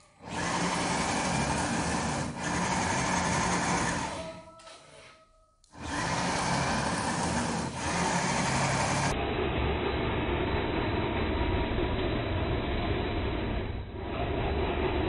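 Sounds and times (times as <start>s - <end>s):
electric motor whirring: 0.2s - 4.4s, 5.7s - 9.2s
tyres churning through snow: 0.3s - 4.1s, 5.8s - 9.2s.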